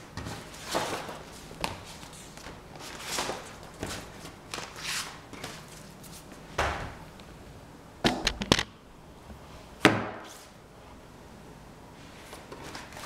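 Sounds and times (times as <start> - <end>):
knocks of objects handled: 8.0 - 8.7.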